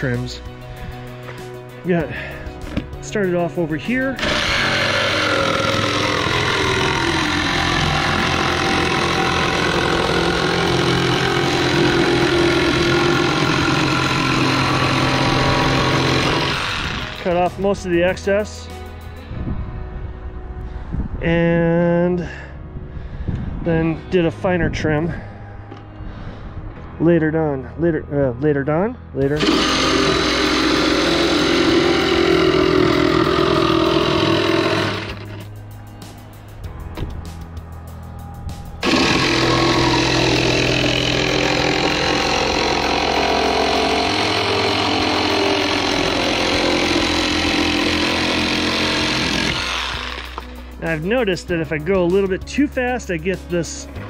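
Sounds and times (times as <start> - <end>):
reciprocating saw cutting plywood: 3.1 - 17.5, 29.4 - 35.5, 38.8 - 50.6.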